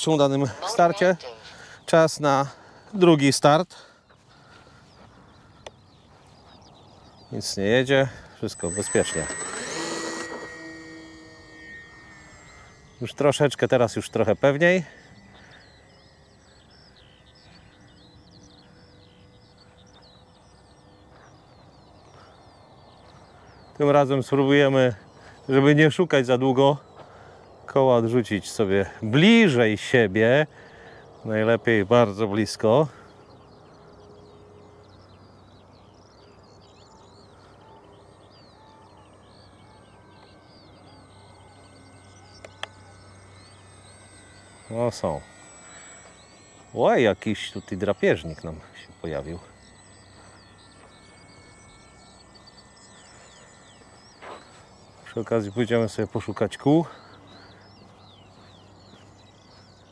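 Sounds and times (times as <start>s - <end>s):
faint steady hum: 0.0s - 59.9s
bird warbling: 4.0s - 59.9s
sharp clicks: 41.0s - 55.8s.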